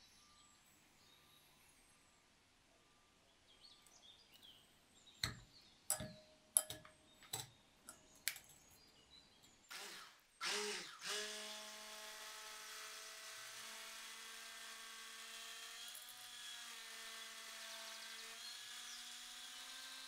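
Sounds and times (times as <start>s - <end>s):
sharp clicks and knocks: 5.2s - 8.6s
electric hand mixer whirring: 9.7s - 20.0s.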